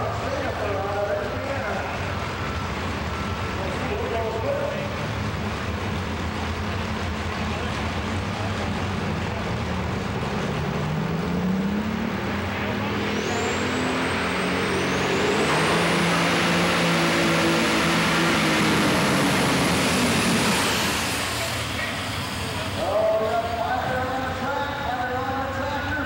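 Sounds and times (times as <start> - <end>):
tractor engine running hard: 0.0 - 26.0
high whine rising in pitch: 11.1 - 22.8.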